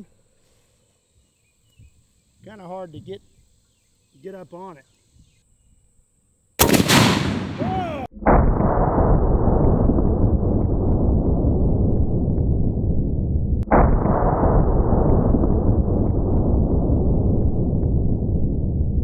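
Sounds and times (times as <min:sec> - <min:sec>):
rifle blast: 0:06.6 - 0:11.8, 0:13.6 - 0:17.3
loud low rumble: 0:06.9 - 0:19.0.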